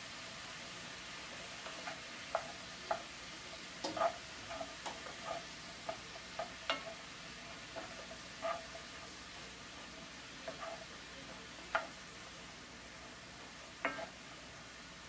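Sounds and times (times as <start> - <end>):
vegetables sizzling in skillet: 0.0 - 15.0
wooden spoon knocking on pan: 1.7 - 3.1, 3.8 - 7.0, 11.7 - 12.0, 13.8 - 14.2.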